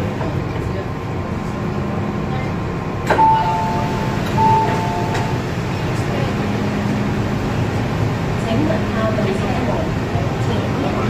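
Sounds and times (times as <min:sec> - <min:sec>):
train humming: 0:00.0 - 0:11.0
two-note chime: 0:03.1 - 0:05.4.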